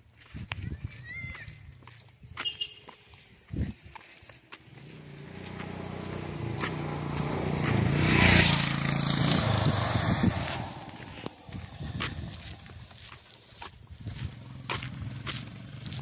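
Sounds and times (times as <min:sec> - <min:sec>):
small motorcycle passing by: 0:04.6 - 0:13.1, 0:14.0 - 0:16.0.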